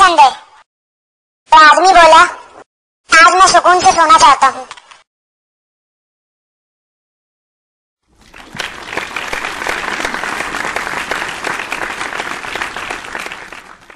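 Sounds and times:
crowd applause: 8.1s - 13.9s.

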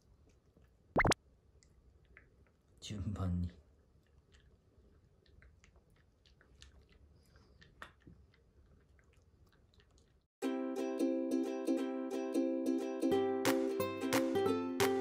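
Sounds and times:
puppy chewing treats: 4.0s - 10.3s.

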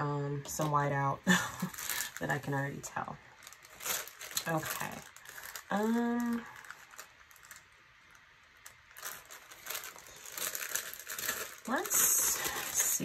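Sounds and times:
sticker sheets crinkling: 3.4s - 13.0s.

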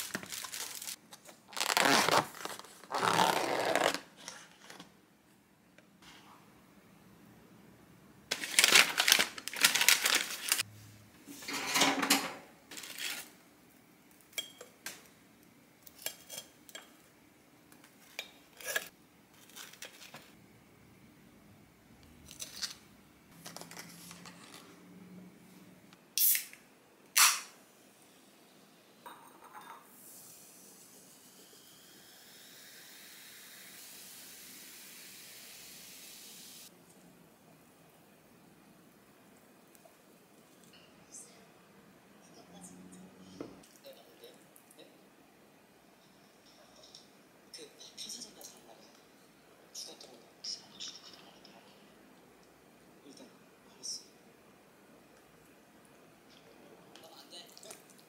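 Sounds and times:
dishes and utensils clinking: 11.3s - 12.5s, 14.3s - 14.8s, 29.0s - 30.0s
steady hiss: 29.9s - 36.7s.

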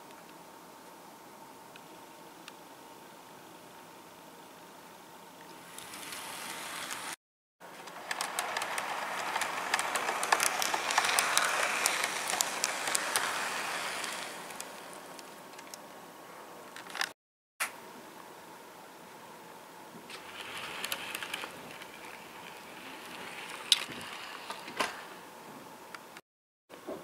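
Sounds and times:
model train wheels clicking over rail joints: 5.6s - 15.8s, 20.1s - 25.2s.

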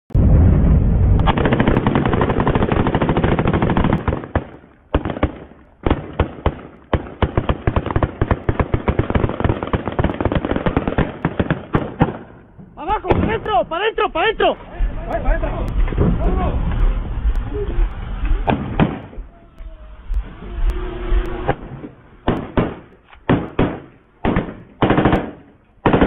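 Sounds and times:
rifle gunfire: 1.2s - 12.4s, 18.4s - 19.2s, 21.4s - 26.0s.

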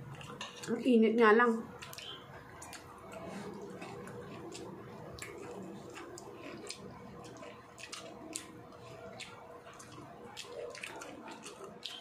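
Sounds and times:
chewing with lip smacks: 0.0s - 0.8s, 1.7s - 12.0s.

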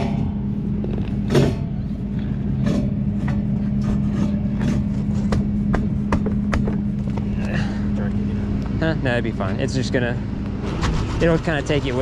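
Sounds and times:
engine idling: 0.0s - 12.0s
plastic gear knocking on pavement: 5.3s - 7.3s.

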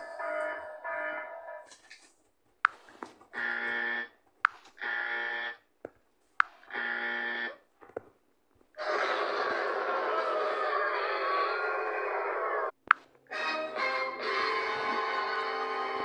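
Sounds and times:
loud music: 13.3s - 16.0s.

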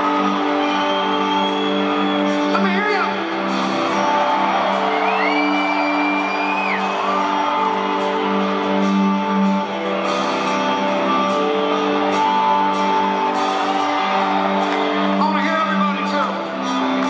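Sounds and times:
crowd cheering: 0.0s - 17.0s
long high whistle from audience: 0.2s - 2.4s, 5.0s - 7.4s.

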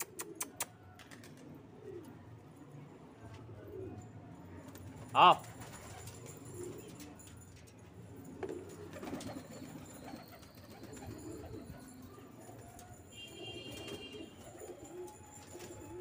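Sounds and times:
pigeons cooing: 0.0s - 2.6s, 8.1s - 16.0s.

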